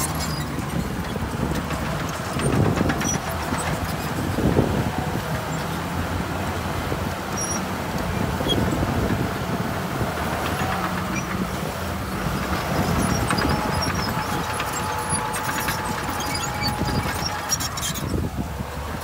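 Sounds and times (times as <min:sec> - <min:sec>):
diesel engine running: 0:00.0 - 0:19.0.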